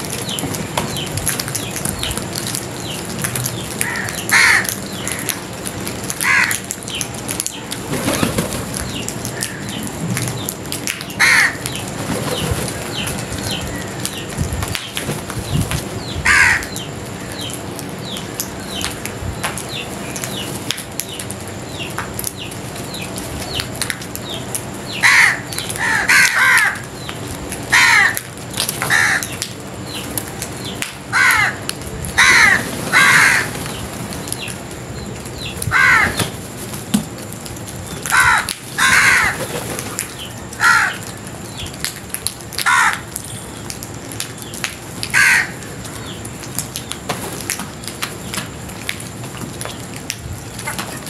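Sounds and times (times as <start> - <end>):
crows cawing: 3.8 - 5.3, 6.2 - 6.7, 9.3 - 9.8, 11.2 - 11.7, 16.2 - 17.4, 25.0 - 26.9, 27.7 - 28.3, 28.9 - 29.4, 31.1 - 31.6, 32.2 - 33.6, 35.7 - 36.2, 38.1 - 39.4, 40.6 - 41.2, 42.6 - 43.1, 45.1 - 46.1.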